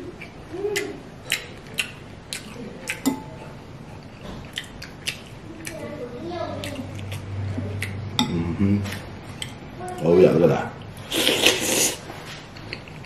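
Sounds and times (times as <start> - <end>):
wet chewing smacks: 0.2 - 5.9.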